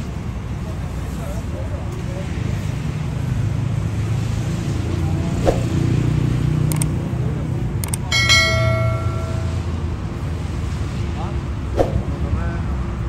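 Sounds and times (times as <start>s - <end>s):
road traffic rumble: 0.0s - 13.0s
sharp clicks: 6.7s - 7.0s, 7.8s - 8.1s
ringing metallic clang: 8.1s - 9.9s.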